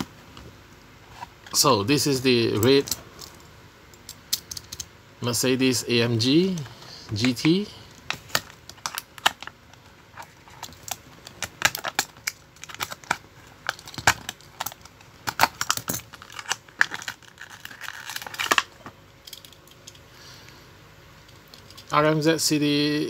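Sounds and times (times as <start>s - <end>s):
plastic blister pack crinkling: 7.2s - 18.9s
plastic tearing: 10.2s - 18.8s.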